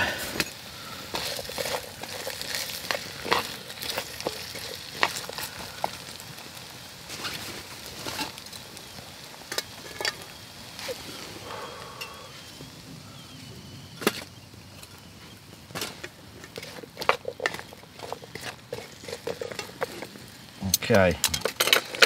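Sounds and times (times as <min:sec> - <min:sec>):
onion sizzling in a frying pan: 0:00.0 - 0:22.0
food stirred in pan clicks and scrapes: 0:00.4 - 0:11.3, 0:15.8 - 0:22.0.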